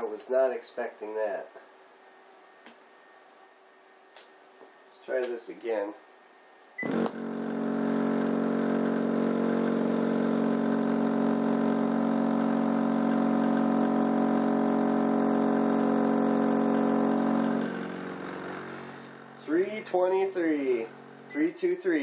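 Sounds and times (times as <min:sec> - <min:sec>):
subwoofer low hum: 0:06.8 - 0:22.0.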